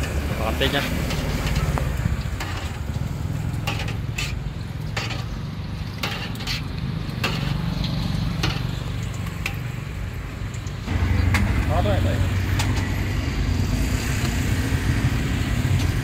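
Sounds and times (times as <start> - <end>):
metal utensils clinking on pan: 0.0 - 9.8
oil frying in a wok: 0.0 - 16.0.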